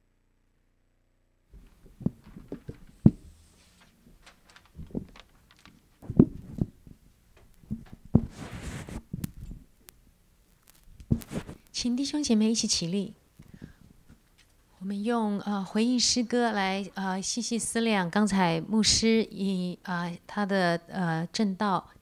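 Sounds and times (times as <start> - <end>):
microphone handling noise: 1.6 - 9.8, 10.6 - 11.8.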